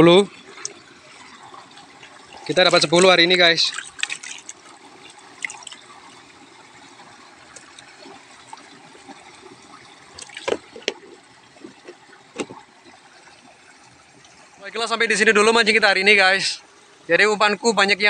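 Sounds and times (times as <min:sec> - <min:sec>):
fish splashing in water: 0:00.4 - 0:14.6.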